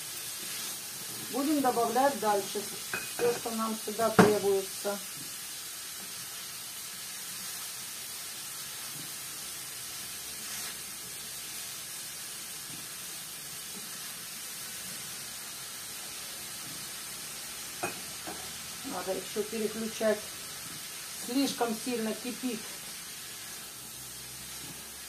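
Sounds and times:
food sizzling in a pan: 0.0s - 25.0s.

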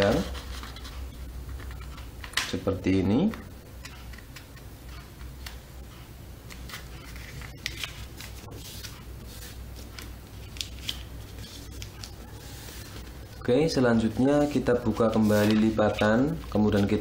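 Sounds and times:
paper rustling and crackling: 0.0s - 1.1s, 6.5s - 13.2s, 14.4s - 17.0s
low steady hum: 0.0s - 17.0s.

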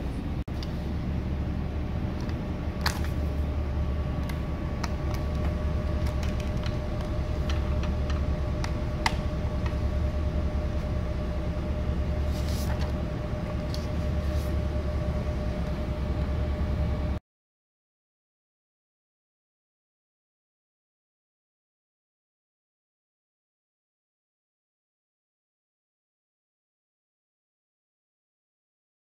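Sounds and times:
printer fans humming and whining: 0.0s - 17.2s.

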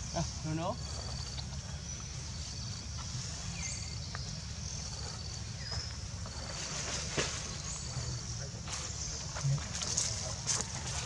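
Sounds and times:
pulsing insect trill: 0.0s - 6.8s.

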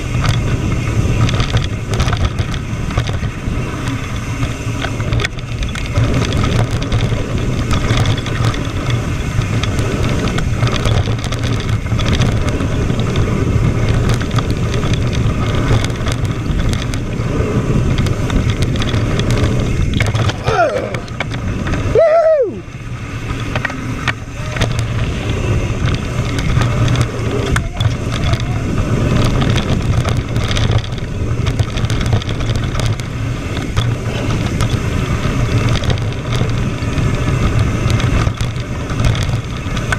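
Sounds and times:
bike tyres running over dirt: 0.0s - 39.9s
wind buffeting microphone: 0.0s - 39.9s
person shouting: 20.4s - 21.0s, 21.9s - 22.6s.

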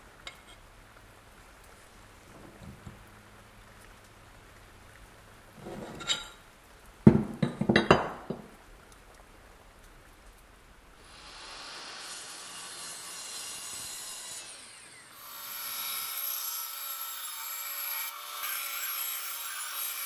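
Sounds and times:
steady hiss: 0.0s - 17.3s
metal scrape: 5.6s - 6.4s.

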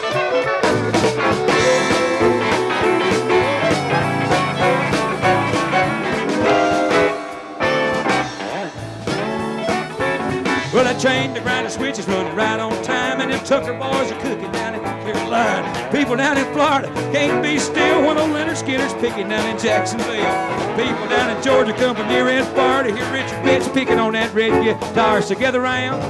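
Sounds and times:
fiddle: 0.0s - 7.2s
drum kit: 0.0s - 26.0s
electric guitars: 0.0s - 26.0s.

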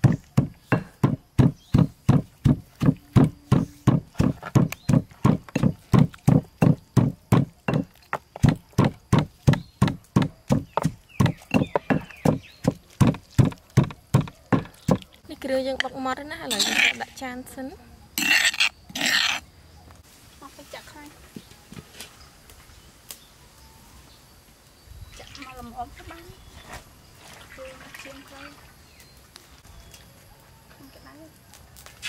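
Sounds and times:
rhythmic heavy thuds: 0.0s - 15.0s.

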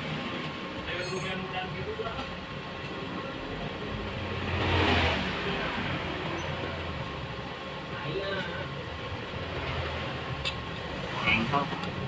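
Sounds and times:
motor vehicle passing by: 4.2s - 6.8s.

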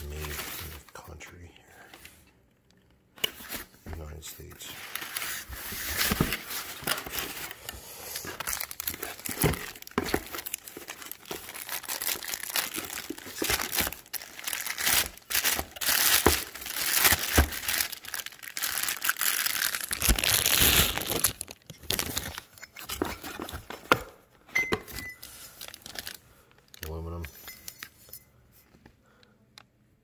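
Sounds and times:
plastic wrap crinkling and tearing: 4.4s - 23.6s, 25.2s - 27.1s.

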